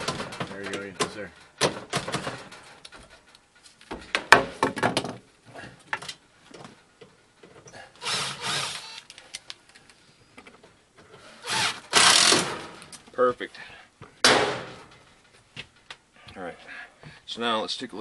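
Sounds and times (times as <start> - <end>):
drill driving screws into metal: 8.0 - 9.1, 11.4 - 12.8.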